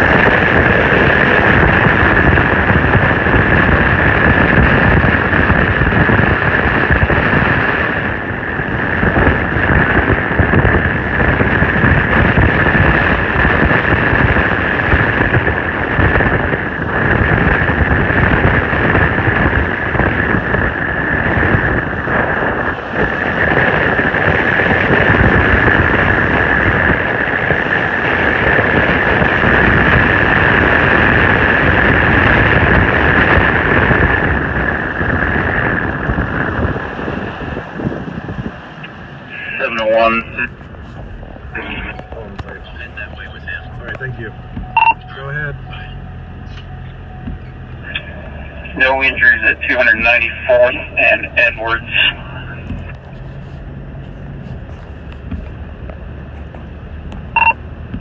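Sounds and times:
storm wind buffeting microphone: 0.0 - 58.0
steady high tone: 39.3 - 52.9.

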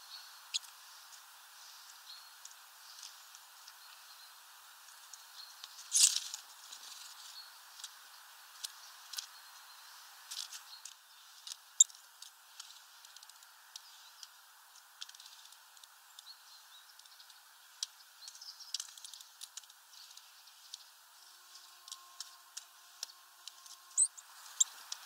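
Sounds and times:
wings fluttering: 5.7 - 7.9, 21.5 - 25.0.

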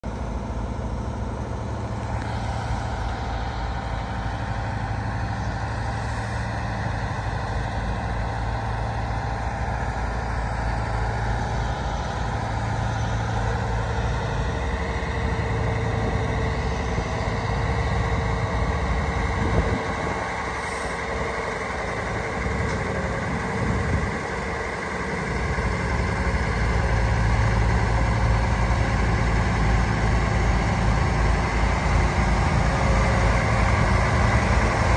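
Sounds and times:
diesel truck engine low hum: 0.0 - 34.9.

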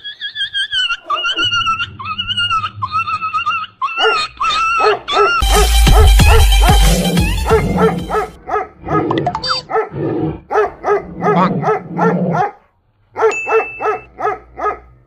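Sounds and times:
dog barking rapidly: 3.8 - 15.0.

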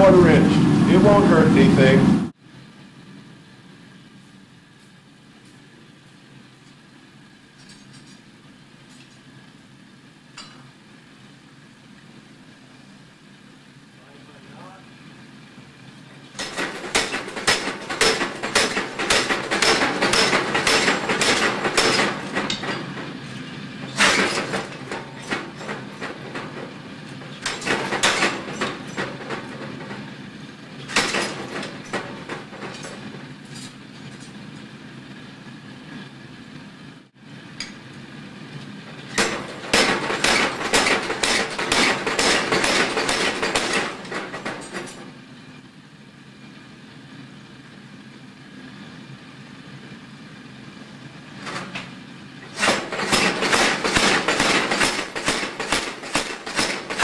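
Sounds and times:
hammer striking steel on anvil: 10.4 - 10.7, 16.4 - 23.0, 39.2 - 45.0.

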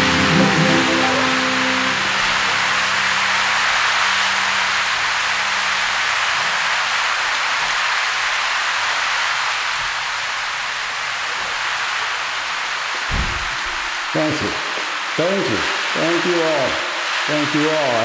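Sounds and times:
held musical chord: 0.0 - 3.8
audience applauding: 0.0 - 9.2.

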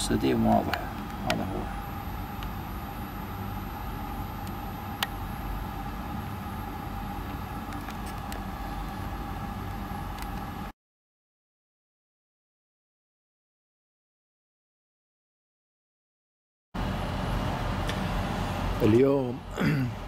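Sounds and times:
engine-like low rumble: 16.8 - 20.0.

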